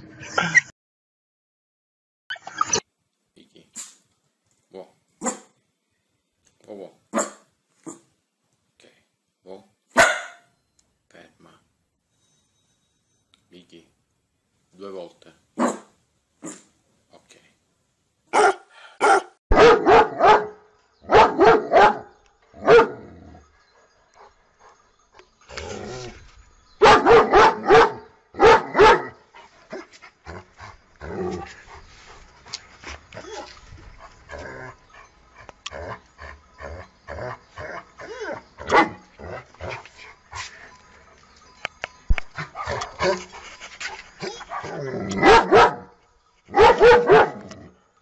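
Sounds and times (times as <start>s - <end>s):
dog barking: 5.2s - 5.5s, 7.1s - 8.0s, 10.0s - 10.5s, 15.6s - 16.7s, 18.3s - 23.0s, 26.8s - 29.2s, 38.6s - 39.0s, 44.3s - 45.9s, 46.5s - 47.4s.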